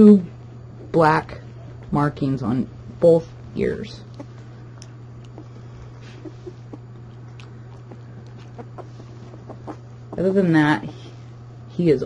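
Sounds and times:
low hum: 0:00.0 - 0:12.0
puppy moving on blanket: 0:05.2 - 0:11.4.

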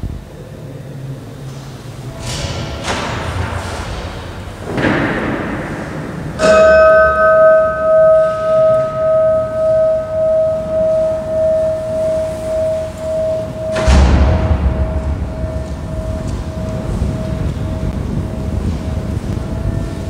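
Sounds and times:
bell ringing: 0:06.4 - 0:19.2.

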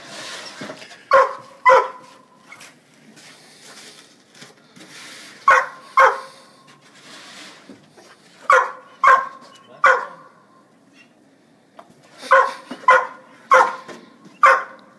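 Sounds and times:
dog barking: 0:01.1 - 0:02.1, 0:05.5 - 0:06.4, 0:08.5 - 0:10.3, 0:12.2 - 0:14.9.

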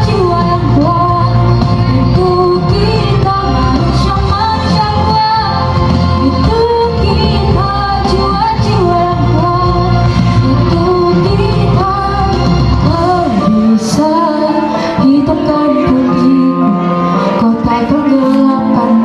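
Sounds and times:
girl singing into a microphone: 0:00.0 - 0:19.0
instrumental backing music: 0:00.0 - 0:19.0.

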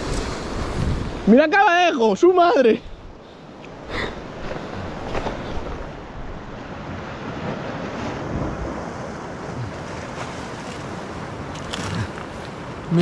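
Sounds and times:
wind buffeting microphone: 0:00.0 - 0:01.3
surf washing over rocks: 0:00.0 - 0:13.0.

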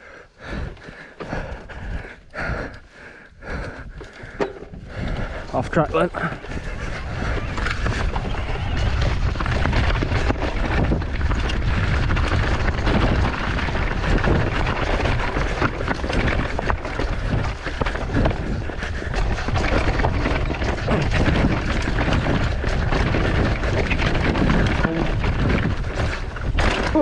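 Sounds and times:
bike knocking and rattling: 0:00.3 - 0:27.0
bike tyres rolling over stones: 0:00.3 - 0:27.0
wind rumble on microphone: 0:03.4 - 0:27.0.

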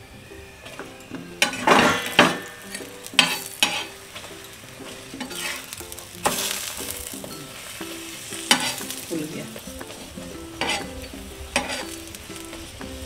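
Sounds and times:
flatbread sizzling in oil: 0:00.0 - 0:13.0
metal spatula pressing on pan: 0:01.4 - 0:04.3, 0:04.9 - 0:06.8, 0:08.4 - 0:09.0, 0:09.9 - 0:12.5.

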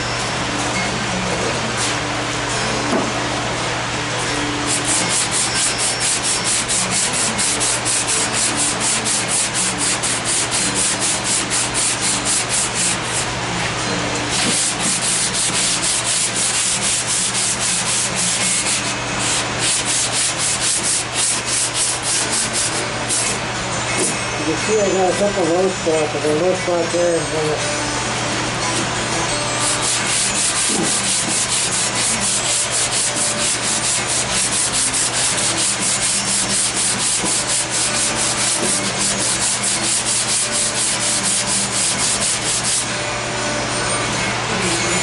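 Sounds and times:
sanding block rubbing filler: 0:04.7 - 0:13.2, 0:14.3 - 0:23.3, 0:29.6 - 0:42.9.

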